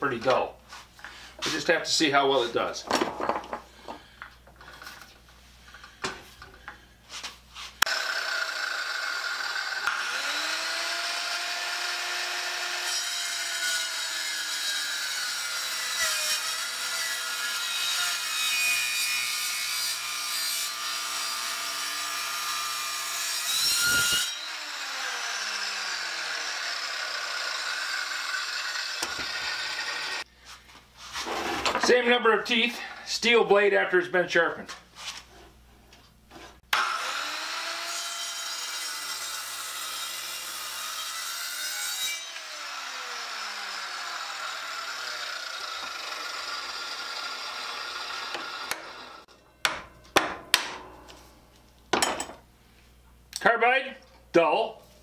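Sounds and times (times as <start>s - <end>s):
circular saw cutting wood: 7.8s - 30.3s, 36.7s - 49.3s.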